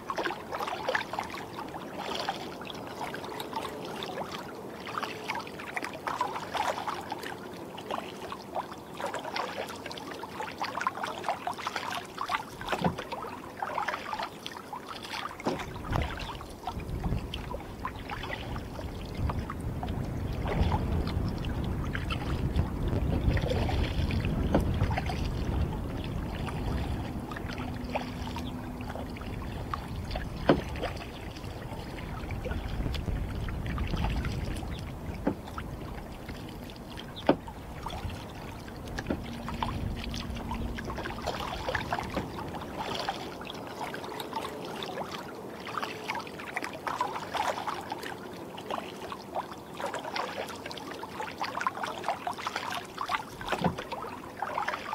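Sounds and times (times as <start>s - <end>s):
paddle strokes splashing water: 0.0s - 54.9s
water running off paddle: 0.0s - 54.9s
steady low rumble: 15.7s - 43.4s.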